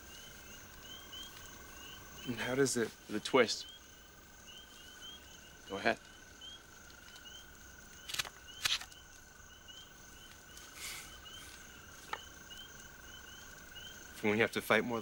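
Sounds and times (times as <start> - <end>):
crickets chirping: 0.0 - 15.0
insect trill: 0.0 - 15.0
spear joint clicks: 8.0 - 9.0
brief rustle: 8.1 - 9.0.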